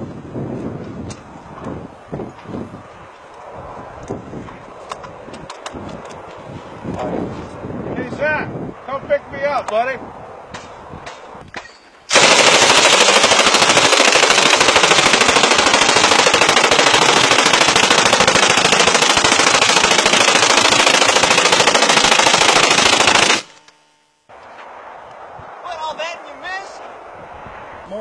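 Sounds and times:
machine gun firing full auto: 12.1 - 23.6.

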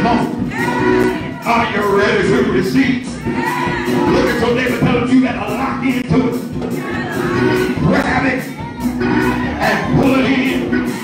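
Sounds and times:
keyboard: 0.0 - 11.0
steady beat: 0.0 - 11.0
man singing into microphone: 9.5 - 11.0.

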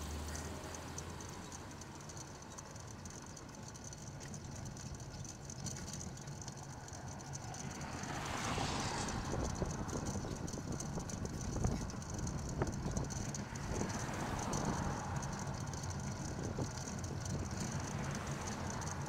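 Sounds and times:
road and wind noise hum: 0.0 - 19.0
car passing close: 5.4 - 19.0.

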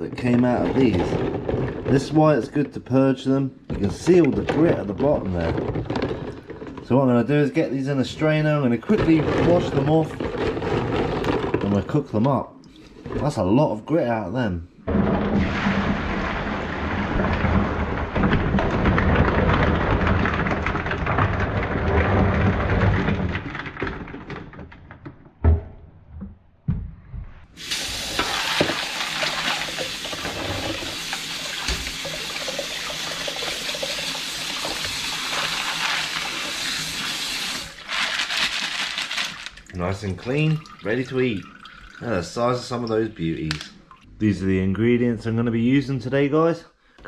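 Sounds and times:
water pouring through strainer: 14.9 - 23.8, 27.6 - 43.0
kitchen tap running: 27.6 - 44.0.

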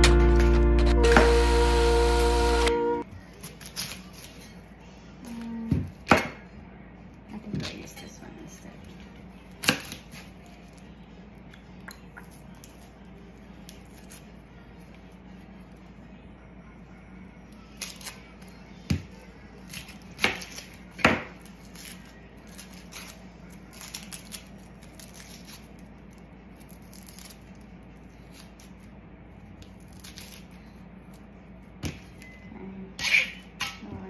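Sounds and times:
faint low hum: 0.0 - 34.0
onion skin crackling: 17.7 - 18.6, 19.5 - 31.3.

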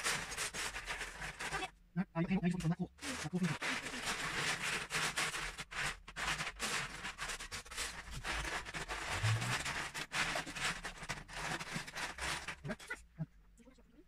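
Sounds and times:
plastic bricks clattering in tubs: 2.6 - 13.0.

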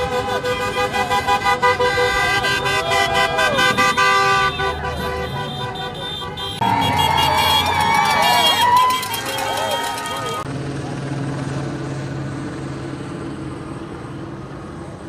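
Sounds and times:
car horns honking: 0.0 - 10.4
street traffic: 0.0 - 15.0.

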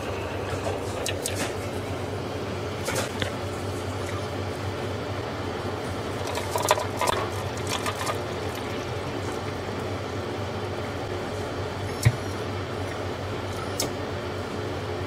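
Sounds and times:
coffee machine humming: 0.0 - 15.0
coffee pouring into paper cup: 6.1 - 9.6.

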